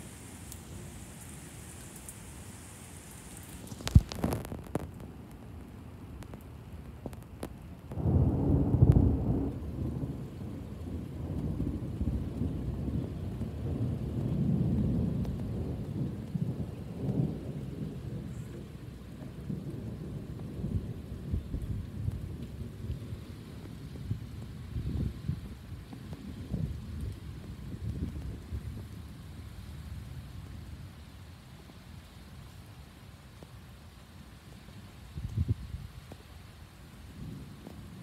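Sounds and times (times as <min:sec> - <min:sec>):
rain hiss: 0:00.0 - 0:38.0
sharp thunder crack: 0:07.9 - 0:10.3
rolling thunder rumble: 0:07.9 - 0:29.5.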